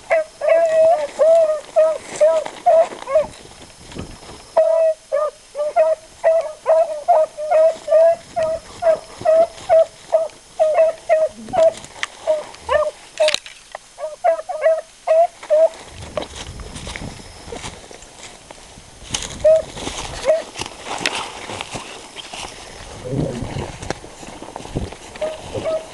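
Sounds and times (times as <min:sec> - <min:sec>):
dog barking: 0:00.1 - 0:01.1, 0:01.8 - 0:03.3, 0:04.6 - 0:13.0, 0:14.0 - 0:15.7, 0:25.2 - 0:25.9.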